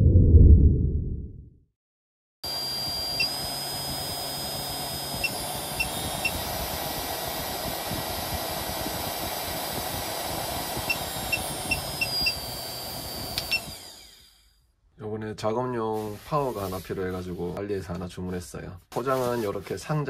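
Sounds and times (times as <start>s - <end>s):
small motor whirring: 2.5s - 14.6s.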